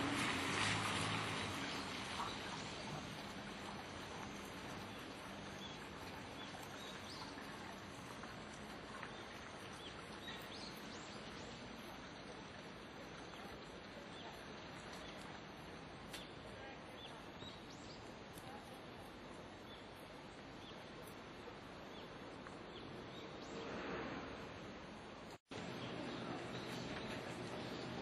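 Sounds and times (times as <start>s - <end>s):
small birds chirping: 1.6s - 21.2s.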